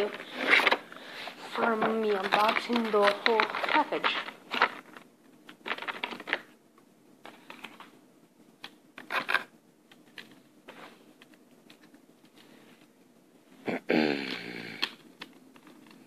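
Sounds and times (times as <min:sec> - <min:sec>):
hands handling objects: 0:00.0 - 0:08.0, 0:08.6 - 0:12.9.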